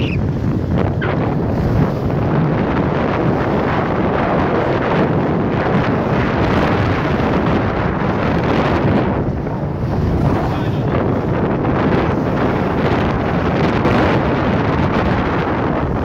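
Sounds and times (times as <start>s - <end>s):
water rushing past boat: 0.0s - 16.0s
wind buffeting microphone: 0.0s - 16.0s.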